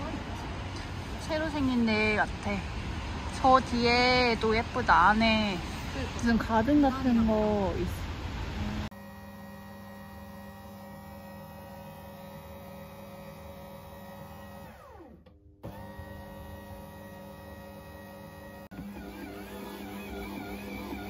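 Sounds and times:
bread maker motor humming: 8.9s - 21.0s.

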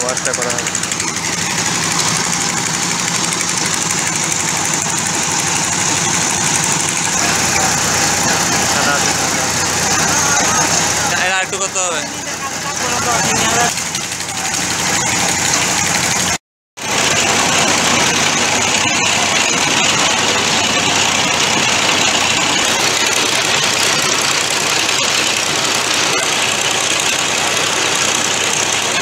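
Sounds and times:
machine engine running: 0.0s - 29.0s
slurry pouring out: 13.5s - 29.0s.

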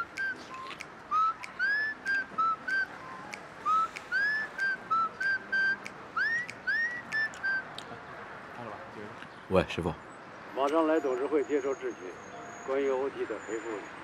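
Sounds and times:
phone ringtone whistled tune: 0.0s - 7.6s.

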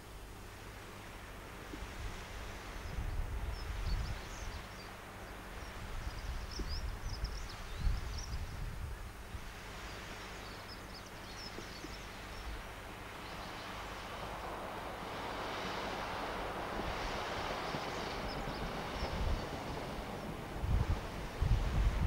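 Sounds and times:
wind buffeting microphone: 1.7s - 4.7s, 5.5s - 10.0s, 11.2s - 22.0s
small birds chirping: 2.8s - 8.6s, 9.7s - 14.6s, 17.4s - 20.4s.

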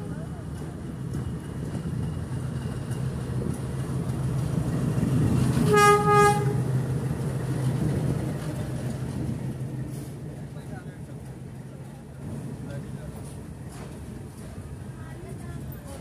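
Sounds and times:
diesel locomotive engine drone: 0.0s - 16.0s
train horn blast: 5.6s - 6.7s.

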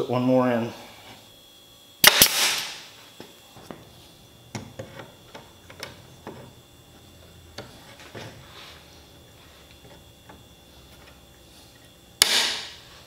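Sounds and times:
tools and wood tapping on workbench: 4.5s - 6.5s.

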